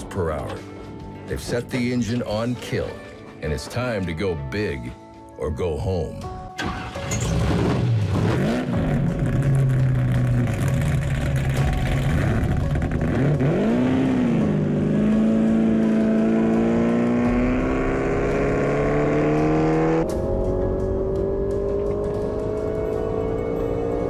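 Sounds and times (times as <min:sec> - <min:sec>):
race car engine revving: 0:07.3 - 0:24.0.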